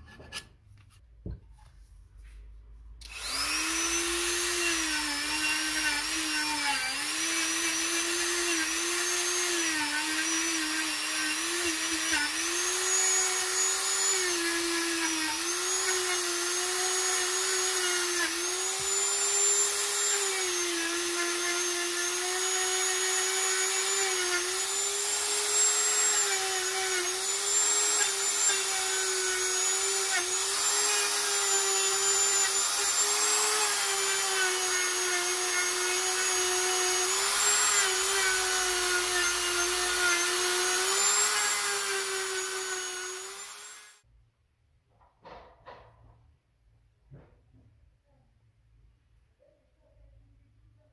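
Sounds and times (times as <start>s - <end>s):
rotary tool whining: 3.0s - 44.0s.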